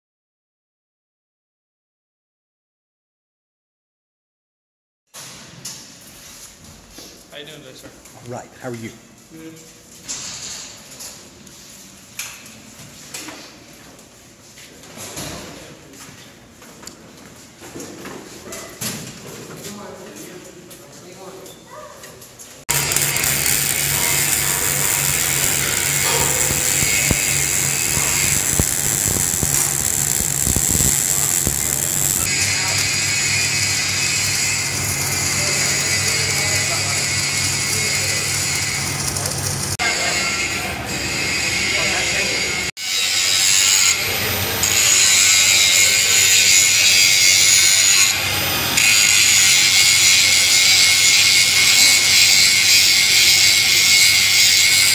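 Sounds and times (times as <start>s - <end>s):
spatter popping: 22.7s - 32.3s
welding arc crackling: 22.7s - 39.8s
angle grinder grinding metal: 22.7s - 54.9s.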